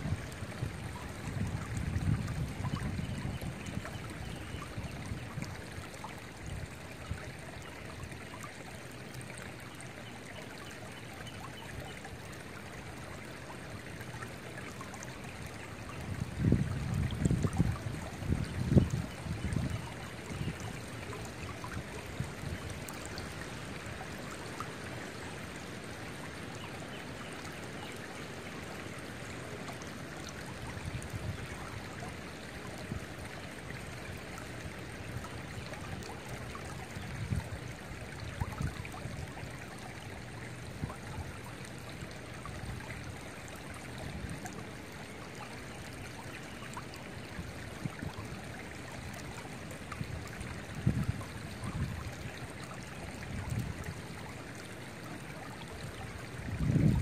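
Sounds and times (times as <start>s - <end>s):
wind rumble on microphone: 0.0s - 7.3s, 15.8s - 23.5s, 36.6s - 39.5s, 49.9s - 52.4s, 53.1s - 54.2s, 55.8s - 57.0s
creek flowing over stones: 0.0s - 57.0s.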